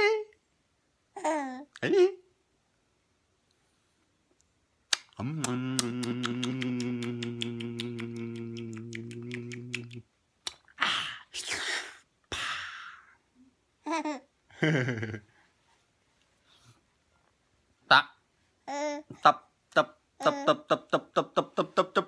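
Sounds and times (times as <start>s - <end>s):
man humming low note: 5.2s - 10.0s
breathy huffs: 12.3s - 13.2s.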